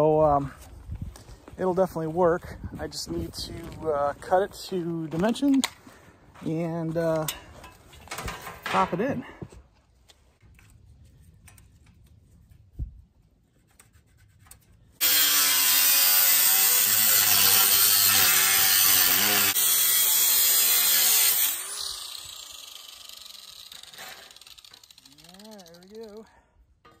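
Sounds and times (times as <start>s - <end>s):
angle grinder cutting steel sheet: 15.0s - 26.2s.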